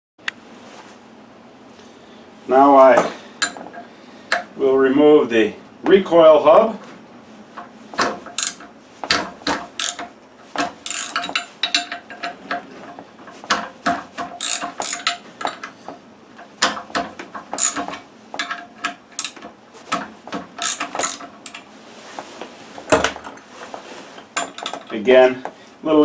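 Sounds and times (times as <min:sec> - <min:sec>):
socket ratchet clicking: 0:08.3 - 0:08.7, 0:09.5 - 0:10.1, 0:10.8 - 0:12.4, 0:14.4 - 0:15.8, 0:17.6 - 0:19.4, 0:20.6 - 0:21.6.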